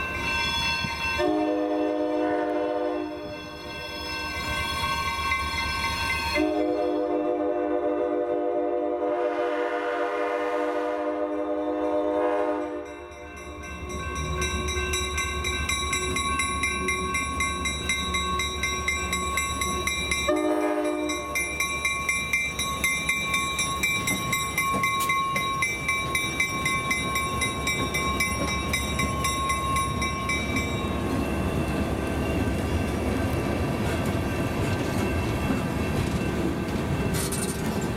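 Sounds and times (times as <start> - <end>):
crossing bell ringing: 0.0 - 8.1, 11.2 - 37.9
passing train rumble: 0.0 - 37.9
locomotive air horn: 1.2 - 3.3, 6.4 - 12.9, 20.3 - 21.4.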